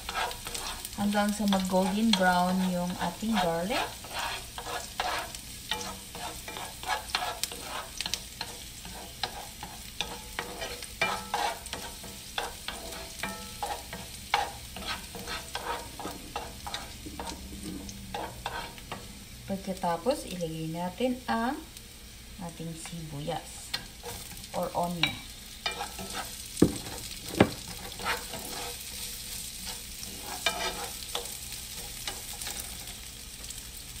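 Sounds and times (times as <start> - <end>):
wooden spoon scraping pan: 0.0 - 19.1, 25.6 - 32.9
garlic sizzling in oil: 0.0 - 34.0.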